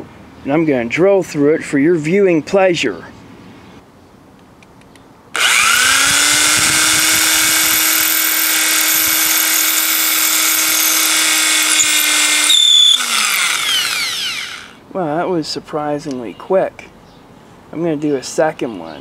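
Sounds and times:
electric drill whining: 0:05.4 - 0:14.8.

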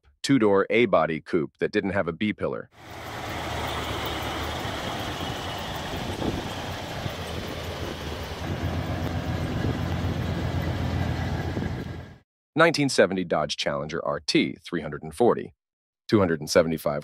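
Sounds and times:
car engine idling: 0:02.8 - 0:12.2.

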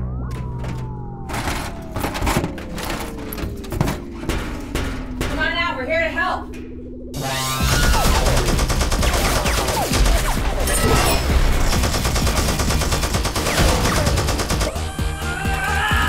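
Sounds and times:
music score with deep bass: 0:00.0 - 0:05.4, 0:06.5 - 0:16.0
rapid gunfire-like shots: 0:07.2 - 0:14.9.

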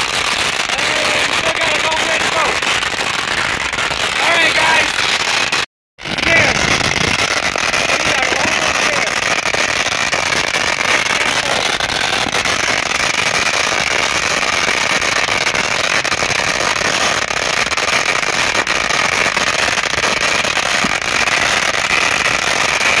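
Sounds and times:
firecrackers crackling: 0:00.0 - 0:23.0.

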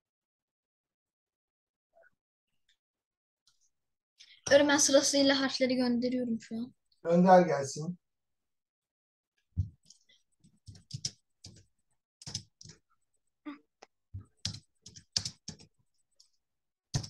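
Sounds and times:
computer keyboard typing: 0:09.8 - 0:12.8, 0:14.2 - 0:16.3.

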